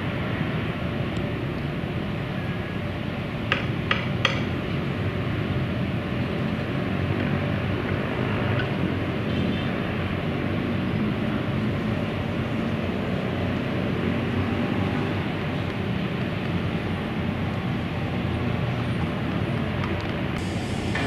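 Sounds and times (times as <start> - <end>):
distant jet landing: 20.4 - 21.0.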